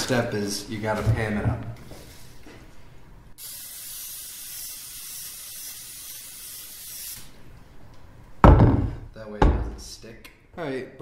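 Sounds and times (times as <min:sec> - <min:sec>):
aerosol spray hissing: 0:03.4 - 0:07.4.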